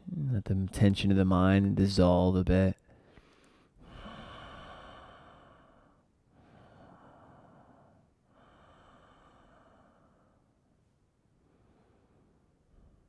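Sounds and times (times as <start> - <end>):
slow deep breathing: 2.8 - 10.7, 11.3 - 13.0.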